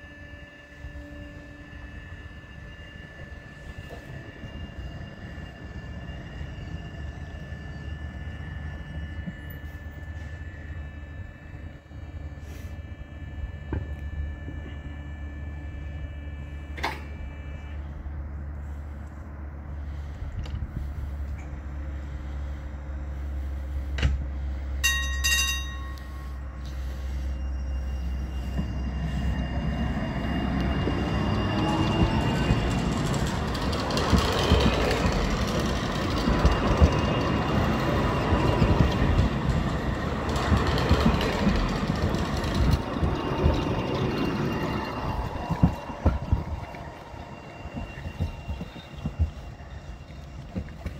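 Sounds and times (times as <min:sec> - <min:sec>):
tram wheels and traction running: 0:00.0 - 0:50.9
trams humming: 0:00.0 - 0:50.9
tram bell strikes: 0:24.8 - 0:50.9.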